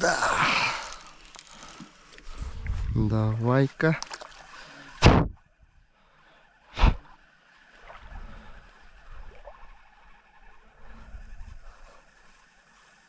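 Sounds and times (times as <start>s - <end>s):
fishing rod swish: 6.8s - 7.1s.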